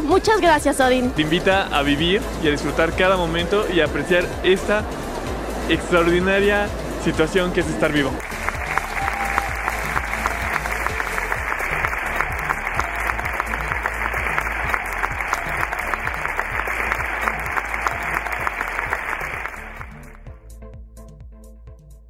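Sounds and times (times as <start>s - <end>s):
background music with low beat: 0.0s - 22.0s
audience applauding: 8.1s - 20.2s.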